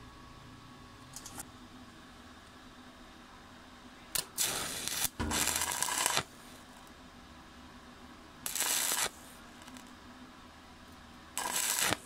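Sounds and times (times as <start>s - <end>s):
welding arc crackling: 4.2s - 6.3s, 8.4s - 9.9s, 11.4s - 12.0s.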